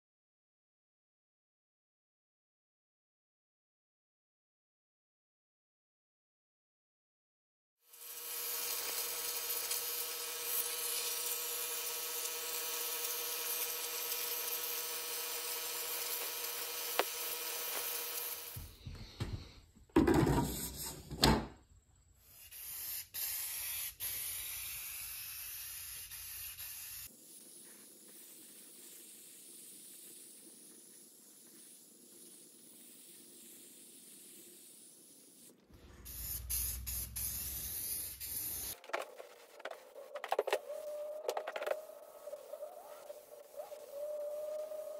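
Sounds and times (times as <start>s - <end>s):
plasma cutter hissing and whining: 7.9s - 18.6s, 22.2s - 38.8s, 40.6s - 44.9s
spray-paint can hissing: 7.9s - 18.7s, 22.2s - 44.9s.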